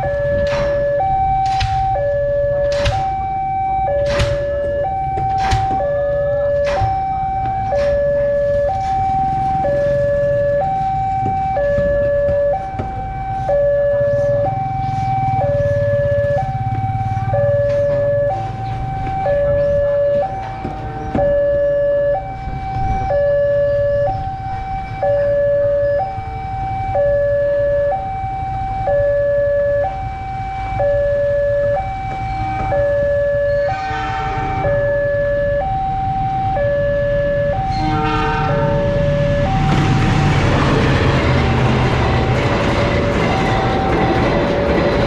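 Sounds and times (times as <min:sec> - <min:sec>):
two-tone level crossing alarm: 0:00.0 - 0:45.0.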